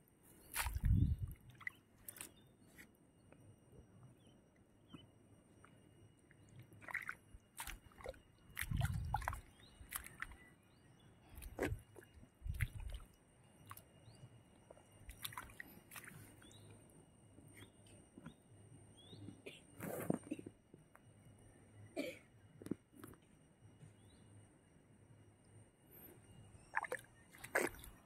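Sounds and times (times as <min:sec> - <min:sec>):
mud squelching and sloshing: 0:00.5 - 0:02.4, 0:06.8 - 0:10.4, 0:11.3 - 0:13.8, 0:15.1 - 0:16.5, 0:26.7 - 0:28.0.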